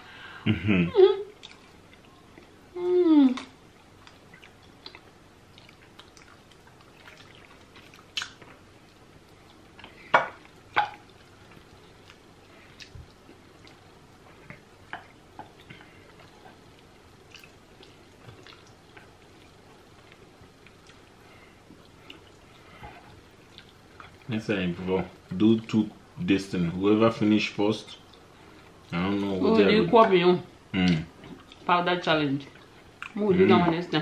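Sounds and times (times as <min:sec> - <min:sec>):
lip smacks while eating: 0:03.4 - 0:08.5.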